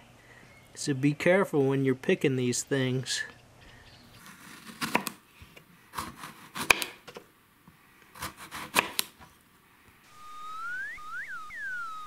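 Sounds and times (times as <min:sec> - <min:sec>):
knife chopping on cutting board: 0:04.3 - 0:05.2, 0:06.0 - 0:07.2, 0:08.2 - 0:09.1
rising electronic whistle: 0:10.1 - 0:12.0.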